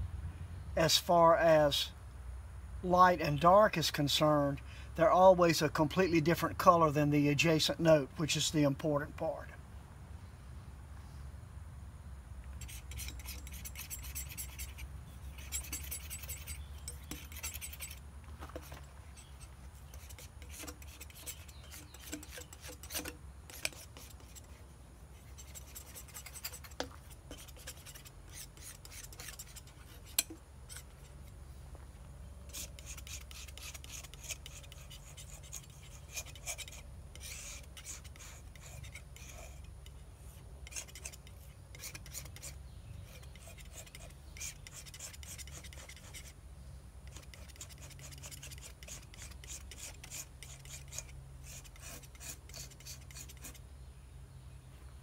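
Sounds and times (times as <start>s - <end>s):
palette knife scraping paint: 12.6s - 18.0s, 18.6s - 31.3s, 32.5s - 46.4s, 47.0s - 53.6s.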